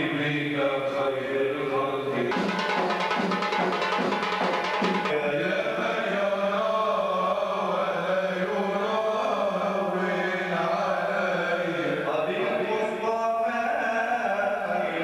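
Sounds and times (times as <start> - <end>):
men chanting: 0.0 - 15.0
frame drum strokes: 2.3 - 5.3.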